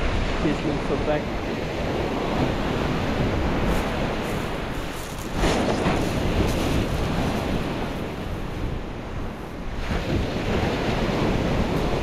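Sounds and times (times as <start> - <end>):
wind buffeting microphone: 0.0 - 12.0
surf breaking on shingle: 3.8 - 8.2.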